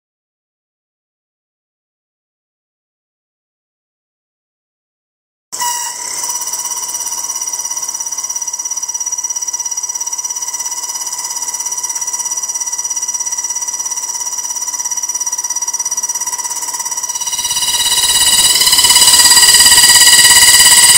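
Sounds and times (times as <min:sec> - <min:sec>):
milling spindle whine: 0:05.6 - 0:20.9.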